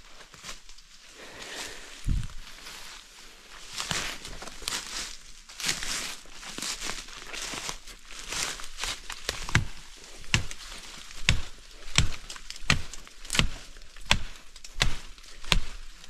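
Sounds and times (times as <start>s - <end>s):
rustling vegetation: 0.0s - 16.0s
machete chopping undergrowth: 8.3s - 16.0s.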